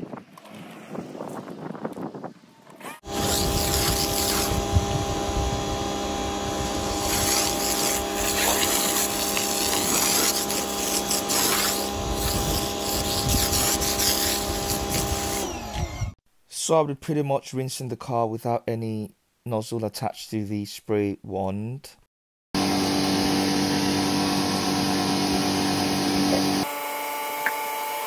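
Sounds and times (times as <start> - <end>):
pressure washer motor humming: 3.0 - 16.1, 22.6 - 26.7
water jet hissing: 6.9 - 15.4.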